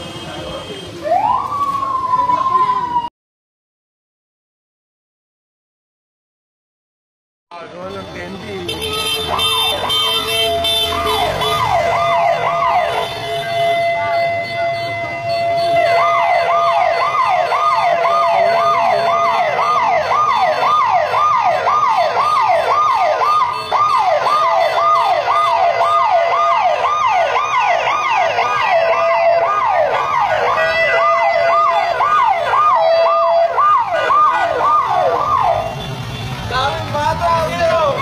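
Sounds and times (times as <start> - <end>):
electronic siren yelping: 9.3 - 35.8.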